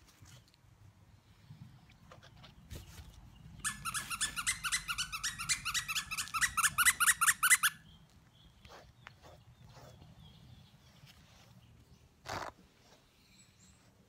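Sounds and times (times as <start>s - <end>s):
squeaky dog toy squeaking: 3.6s - 7.8s.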